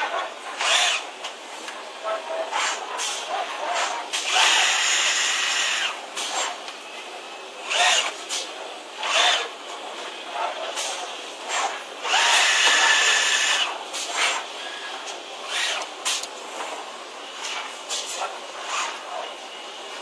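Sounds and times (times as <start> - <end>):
tube bending machine whining and hissing: 4.1 - 6.7, 10.7 - 20.0.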